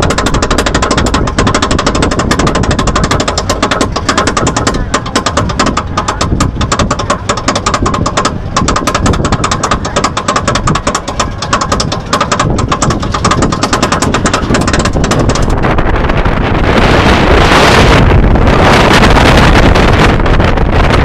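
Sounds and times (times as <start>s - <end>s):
ratchet clicking rapidly: 0.0s - 15.8s
rumbling chain and train: 0.0s - 16.5s.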